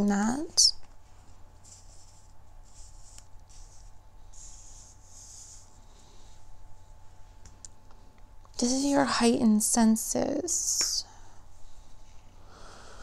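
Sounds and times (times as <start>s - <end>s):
faint low hum: 0.0s - 13.0s
cards rustling across tabletop: 0.8s - 5.8s.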